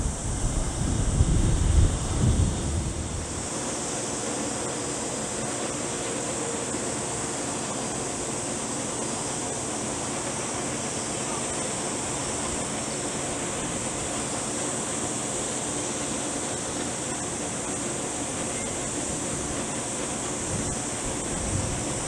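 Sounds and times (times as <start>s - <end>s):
jet engines on approach: 0.0s - 22.0s.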